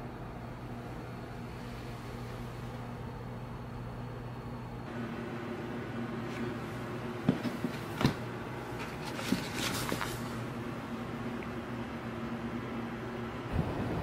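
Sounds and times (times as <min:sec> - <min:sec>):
low electrical hum: 0:00.0 - 0:14.0
books knocking against shelf: 0:07.2 - 0:10.2
paper rustling: 0:07.3 - 0:10.5.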